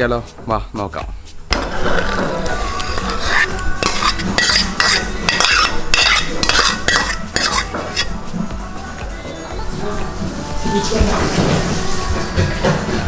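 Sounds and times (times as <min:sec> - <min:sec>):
spoon scraping earthenware dish: 0:01.6 - 0:08.2
wet mash being spooned: 0:02.7 - 0:08.2.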